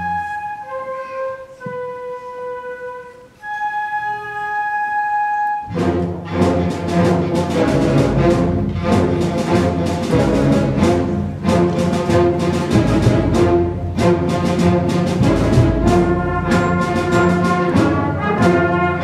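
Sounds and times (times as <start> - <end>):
concert band playing: 5.5 - 19.0.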